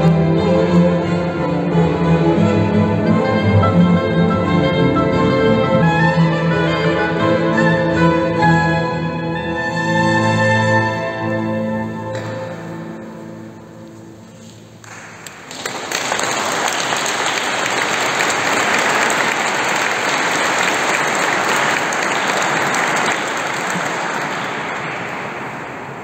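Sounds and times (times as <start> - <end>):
audience applauding: 14.8 - 26.0.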